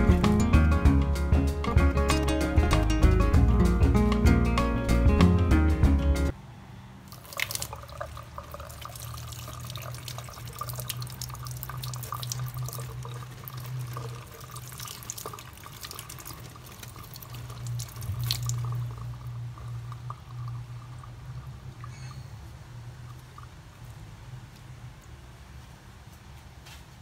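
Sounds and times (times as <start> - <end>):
water splashing off watermelon: 7.1 - 20.2
water running from tap: 7.1 - 21.9.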